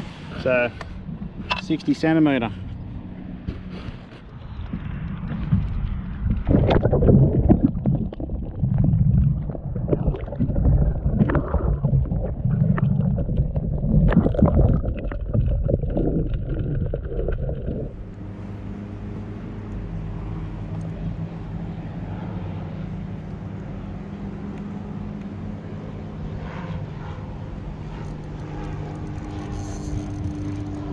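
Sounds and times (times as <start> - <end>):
steady low drone: 0.0 - 30.9
water sloshing and gurgling: 3.6 - 18.3, 27.8 - 30.9.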